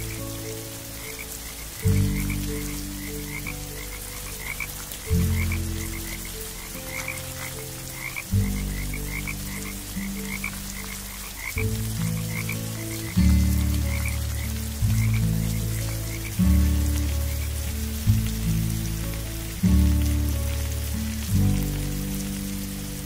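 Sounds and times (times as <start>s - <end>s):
deep frog calls: 0.0s - 17.6s
frogs chirping high: 0.0s - 17.6s
faint steady hiss: 0.0s - 23.0s.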